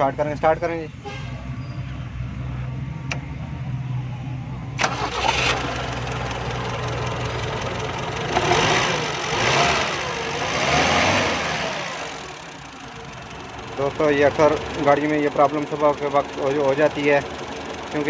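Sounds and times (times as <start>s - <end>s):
sharp click: 3.1s - 3.3s
car engine revving: 4.8s - 15.6s.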